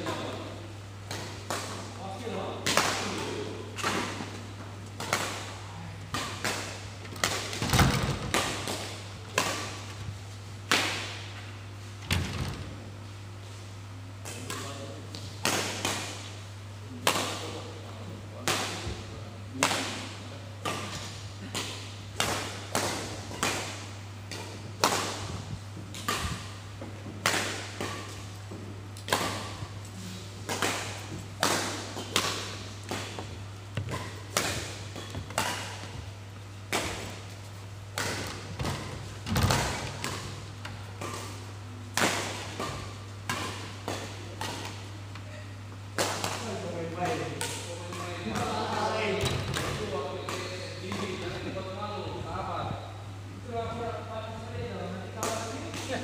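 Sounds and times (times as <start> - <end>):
steady low hum: 0.0 - 56.0
rackets striking shuttlecock: 6.1 - 10.0, 19.6 - 26.6, 30.4 - 36.1, 36.7 - 45.2, 45.9 - 48.5.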